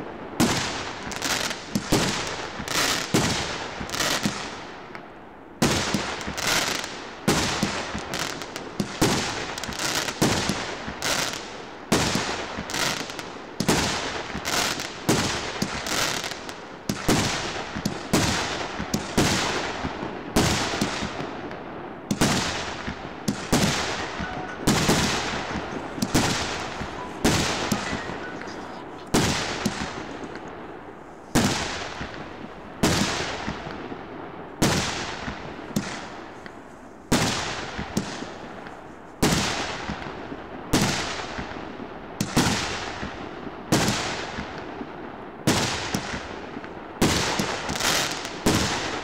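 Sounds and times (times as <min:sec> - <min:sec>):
firework shells banging: 0:23.3 - 0:30.6.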